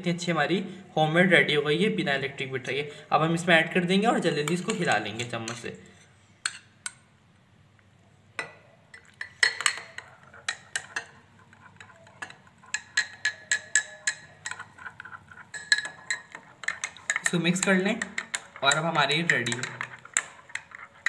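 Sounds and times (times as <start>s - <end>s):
spoon clinking in glass mug: 8.4s - 11.2s, 11.8s - 14.9s.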